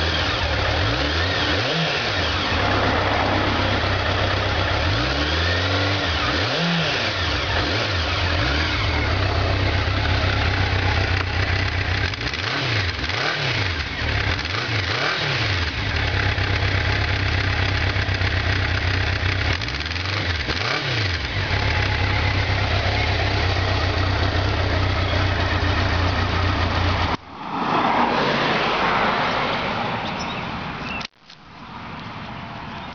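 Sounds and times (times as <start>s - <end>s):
motorcycle engine idling: 2.0s - 6.4s, 7.0s - 14.6s, 15.6s - 27.2s.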